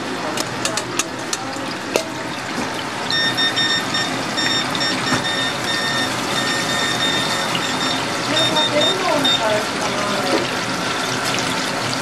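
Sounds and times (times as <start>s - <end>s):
tempura sizzling in hot oil: 0.0s - 12.0s
high electronic beeps: 3.1s - 9.5s.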